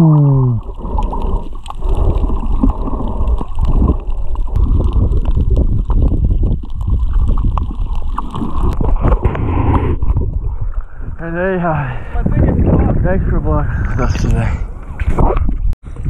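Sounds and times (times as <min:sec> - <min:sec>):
muffled underwater rumble: 0:00.0 - 0:11.2.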